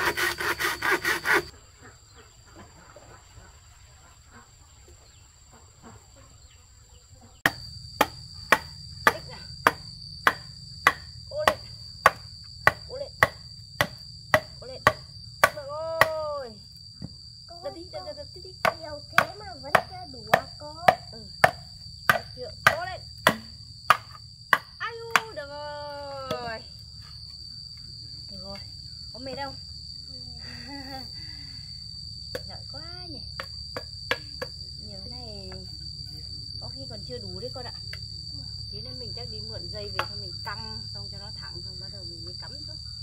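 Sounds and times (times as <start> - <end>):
hand tool blows: 0.0 - 1.5
high insect drone: 0.0 - 43.0.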